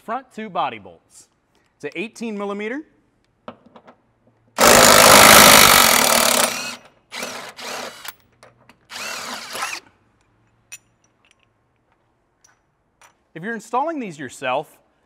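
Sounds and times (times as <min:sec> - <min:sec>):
impact wrench hammering: 0:04.6 - 0:08.2.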